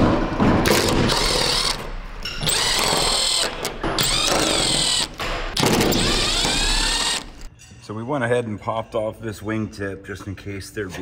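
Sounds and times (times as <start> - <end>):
cordless drill motor whine: 2.4 - 5.2, 5.9 - 7.5.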